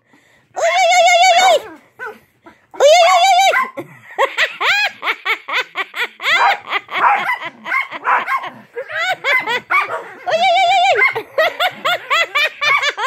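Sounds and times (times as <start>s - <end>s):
person laughing: 2.8s - 13.0s
small dog yipping: 3.4s - 3.7s.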